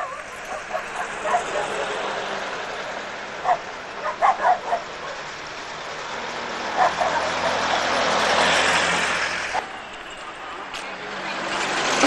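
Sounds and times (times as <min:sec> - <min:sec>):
dog barking: 0:00.0 - 0:01.9, 0:03.4 - 0:05.3, 0:06.7 - 0:07.8
vehicles passing on road: 0:00.0 - 0:12.0.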